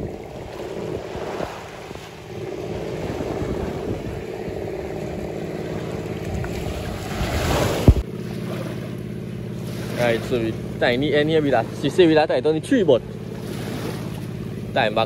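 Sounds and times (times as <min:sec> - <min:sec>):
wind buffeting microphone: 0:00.0 - 0:08.0
low steady hum: 0:00.0 - 0:15.0
water sloshing: 0:00.0 - 0:15.0.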